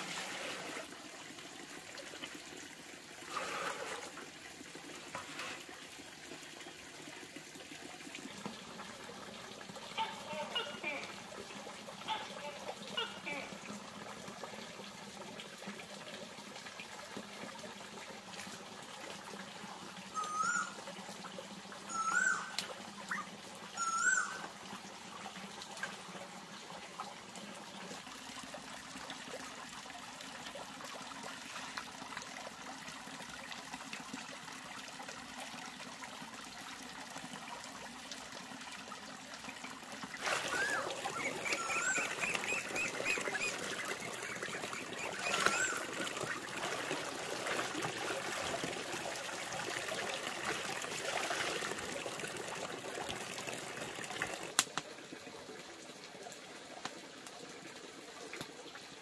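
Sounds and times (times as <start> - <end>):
water trickling: 0.0 - 59.0
chirping animal calls: 40.5 - 45.9.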